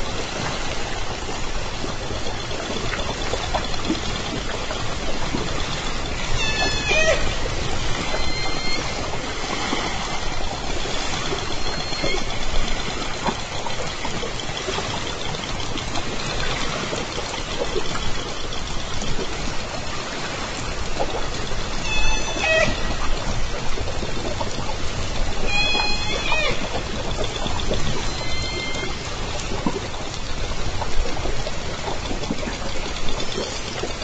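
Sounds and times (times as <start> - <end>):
rushing water hiss: 0.0 - 34.0
killer whales calling underwater: 6.1 - 13.9, 21.7 - 23.6, 25.3 - 29.9.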